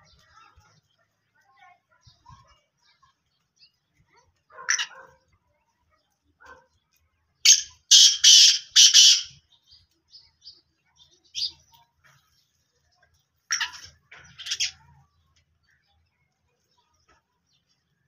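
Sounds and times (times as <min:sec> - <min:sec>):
faint sparrow chirps: 0:00.0 - 0:18.0
francolin harsh grating call: 0:07.5 - 0:09.4.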